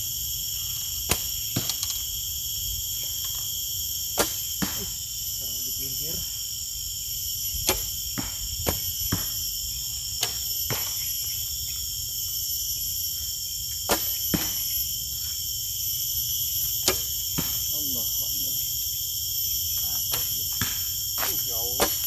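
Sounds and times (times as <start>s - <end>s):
high insect drone: 0.0s - 22.0s
arrow striking target: 1.0s - 2.0s, 4.1s - 5.0s, 7.6s - 9.4s, 10.2s - 11.0s, 13.8s - 14.7s, 16.8s - 17.7s, 20.1s - 22.0s.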